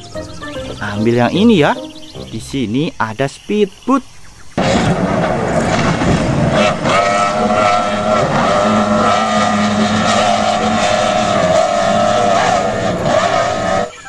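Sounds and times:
powerboat engines at high speed: 4.6 - 14.0.

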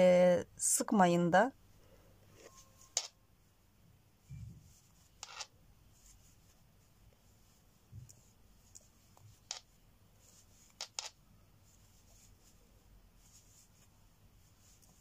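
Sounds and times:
yarn rustling over crochet hook: 4.6 - 15.0.

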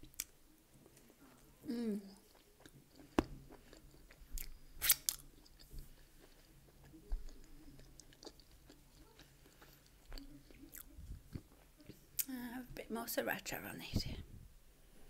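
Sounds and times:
person chewing food: 0.0 - 12.3
wet mouth smacks and clicks: 4.4 - 5.2.

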